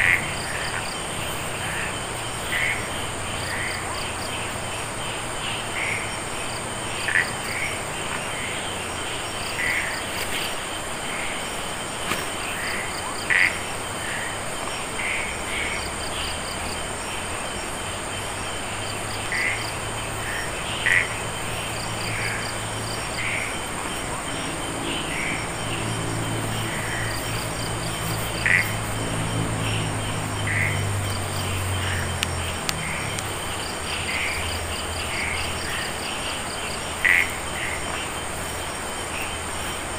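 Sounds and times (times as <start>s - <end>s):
frog calls: 0.0s - 39.9s
high insect drone: 0.0s - 39.9s
pulsed insect trills: 0.0s - 39.9s
low hum: 19.7s - 35.4s.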